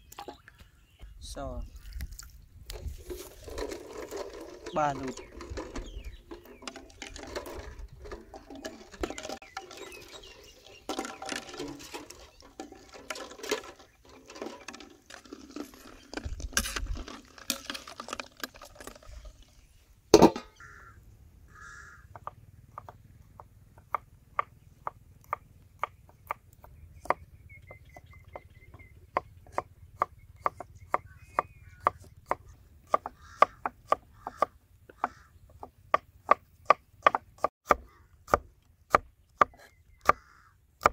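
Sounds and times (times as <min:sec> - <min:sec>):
water sloshing in pot: 0:01.8 - 0:19.6
metal lid clanking on pot: 0:20.2 - 0:20.6
faint bird chirps: 0:25.8 - 0:32.3
cleaver chopping on wooden board: 0:29.2 - 0:40.2.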